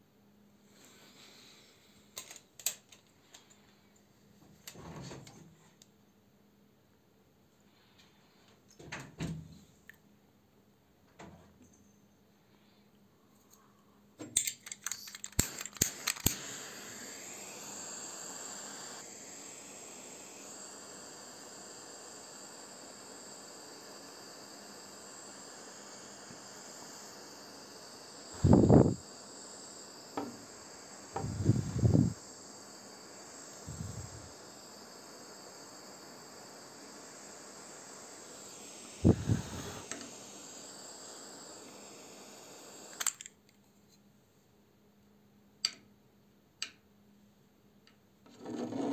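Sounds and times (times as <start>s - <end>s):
gas hissing: 0.7s - 3.9s, 14.4s - 43.3s
torch lighter ignition clicks: 14.3s - 43.4s.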